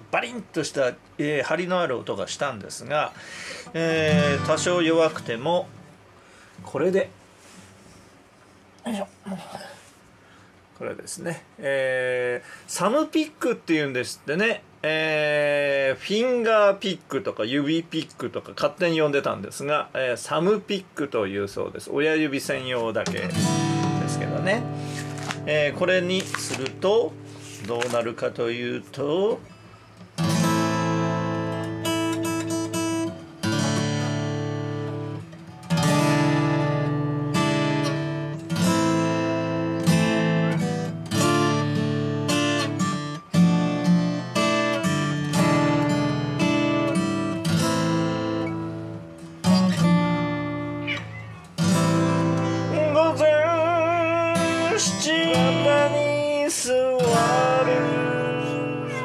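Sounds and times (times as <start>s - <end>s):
acoustic guitar plucked chords: 3.6s - 6.0s, 23.0s - 59.0s
cat yowling: 50.8s - 51.6s, 58.7s - 59.0s.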